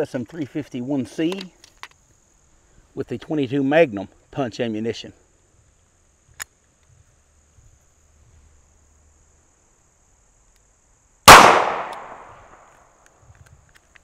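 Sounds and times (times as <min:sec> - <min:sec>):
revolver gunshot: 0:11.3 - 0:12.7.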